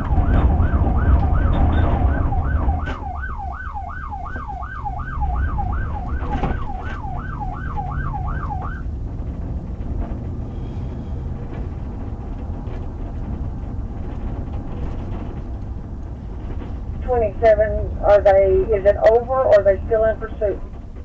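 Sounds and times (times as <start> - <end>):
police siren yelping: 0.0 - 8.9
car engine and road rumble: 0.0 - 21.0.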